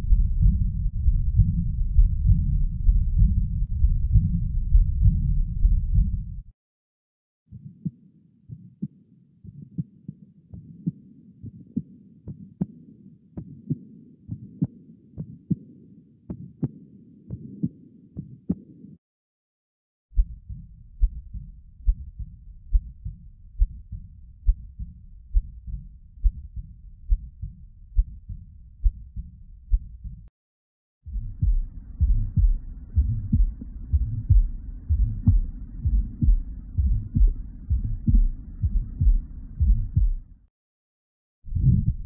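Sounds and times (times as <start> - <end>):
heartbeats through stethoscope: 0.0 - 6.4, 7.5 - 12.8, 13.4 - 18.7, 20.2 - 30.3, 31.1 - 40.4, 41.5 - 42.0
harsh blowing heart murmur: 31.1 - 40.3.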